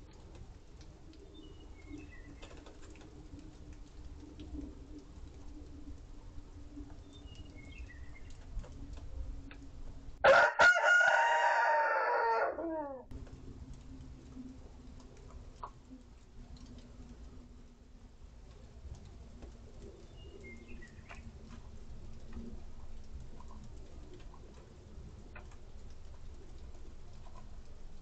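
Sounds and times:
rooster crowing: 10.2s - 13.1s.

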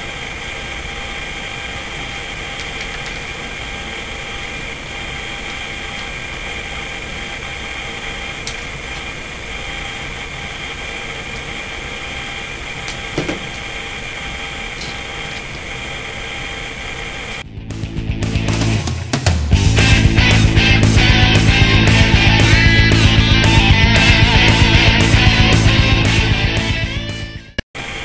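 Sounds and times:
fan or motor whirring hum: 0.0s - 17.5s, 19.6s - 27.1s.

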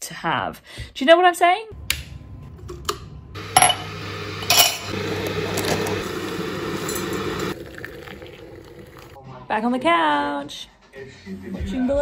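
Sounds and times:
electric kettle hissing: 3.4s - 9.2s
glass teapot and infuser clinking: 3.6s - 5.0s, 6.7s - 9.1s.

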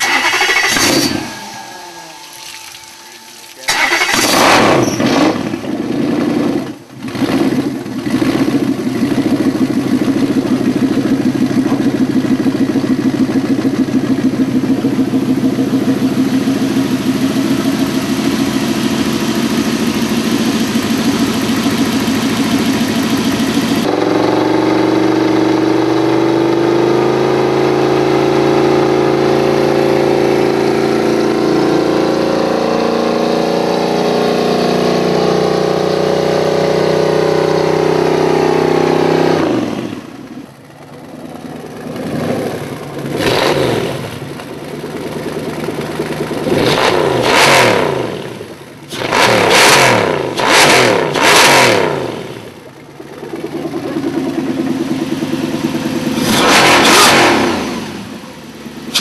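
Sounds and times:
boat engine idling: 6.8s - 23.9s, 40.0s - 46.6s, 52.5s - 56.2s.

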